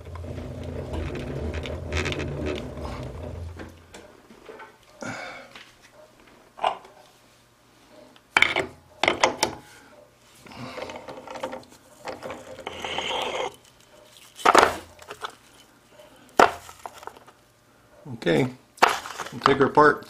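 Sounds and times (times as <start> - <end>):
rough machine noise: 0.0 - 4.0.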